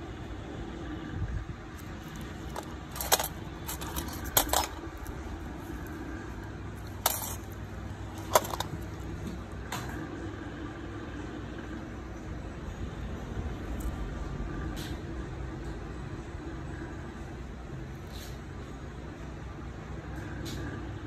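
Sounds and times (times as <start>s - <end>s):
low background hum: 0.0s - 21.0s
metal nails clinking: 2.0s - 5.2s, 6.8s - 8.9s.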